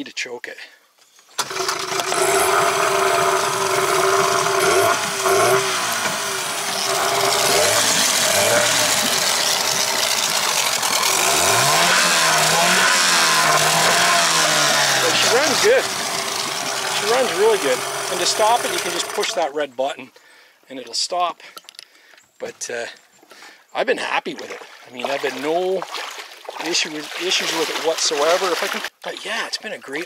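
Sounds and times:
outboard motor pull-start: 1.4 - 19.5, 26.6 - 28.9
two-stroke outboard engine revving: 1.4 - 19.5, 25.0 - 28.9.

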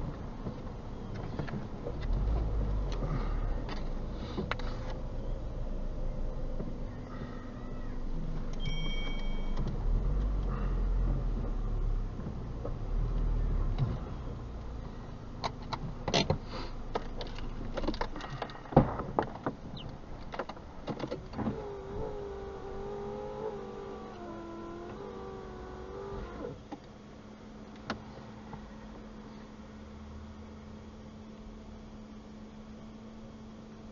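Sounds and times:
wavering whine: 5.0 - 15.3, 21.3 - 26.6
sharp clicks and knocks: 15.4 - 21.6.

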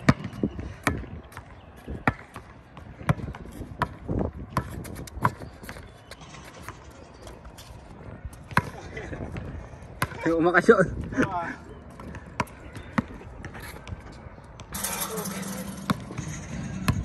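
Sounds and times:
basketball bouncing on concrete: 0.0 - 5.9, 12.0 - 17.0.

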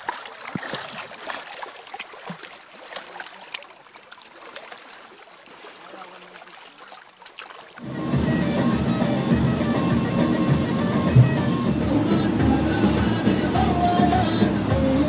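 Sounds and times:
small waves lapping over rocks: 0.0 - 7.9.

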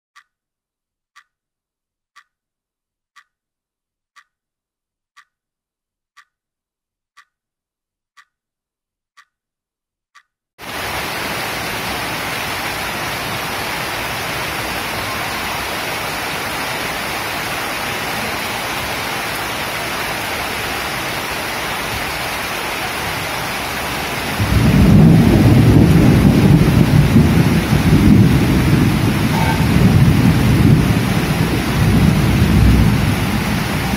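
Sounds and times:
faint ticking: 0.2 - 0.4, 2.2 - 2.4
steady rain: 10.6 - 33.9
low rumble of thunder: 24.4 - 33.9.

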